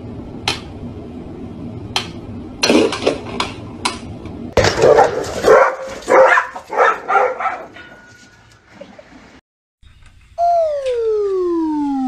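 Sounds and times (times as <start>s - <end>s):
dogs barking: 4.6s - 7.9s.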